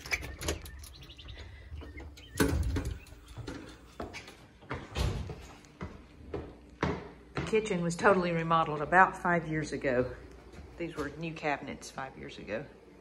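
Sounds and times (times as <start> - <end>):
footsteps: 1.3 - 9.2, 9.9 - 11.4.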